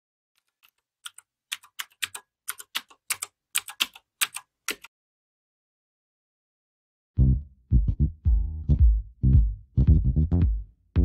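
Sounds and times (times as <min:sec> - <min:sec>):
keyboard typing: 0:00.4 - 0:04.9.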